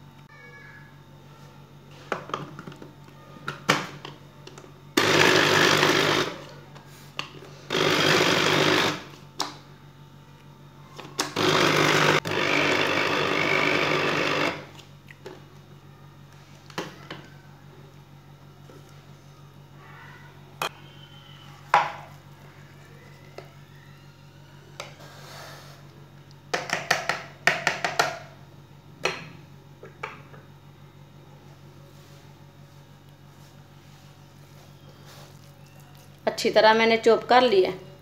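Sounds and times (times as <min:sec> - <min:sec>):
electric food chopper running: 0:05.0 - 0:06.5, 0:07.6 - 0:09.2, 0:11.2 - 0:14.9.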